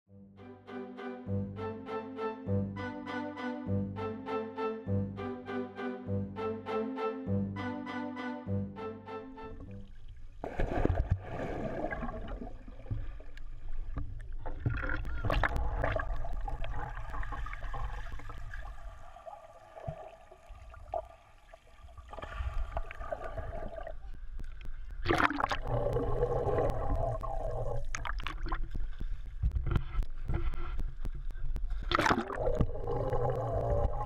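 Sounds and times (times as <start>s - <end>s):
underwater bubbling: 9.6s - 34.0s
muffled underwater rumble: 22.3s - 34.0s.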